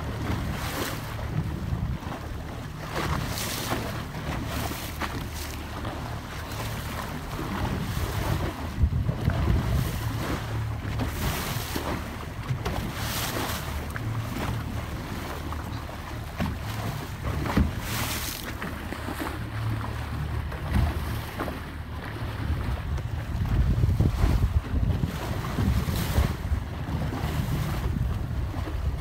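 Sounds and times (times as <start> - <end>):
wind on microphone: 0.0 - 5.8, 6.4 - 14.9, 20.5 - 29.0
boat motor rumbling: 0.0 - 29.0
water washing past boat hull: 0.0 - 29.0.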